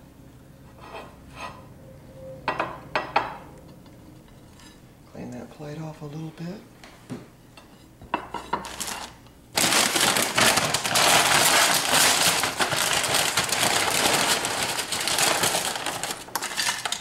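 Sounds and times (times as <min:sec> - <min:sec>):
chip bag crinkling: 0:08.7 - 0:17.0.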